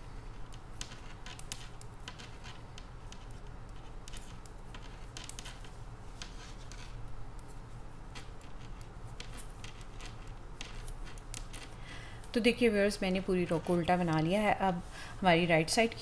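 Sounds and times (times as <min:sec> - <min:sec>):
knitting needles clicking: 0:00.5 - 0:06.6, 0:08.1 - 0:12.4.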